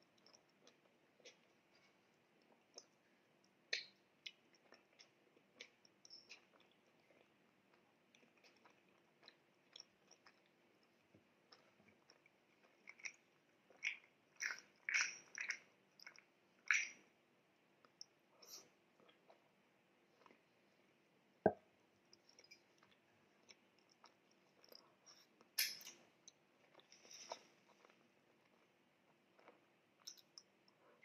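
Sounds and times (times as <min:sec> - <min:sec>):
chewing soft bread: 0:00.0 - 0:31.0
wet mouth clicks and smacks: 0:03.7 - 0:07.2, 0:11.5 - 0:17.0.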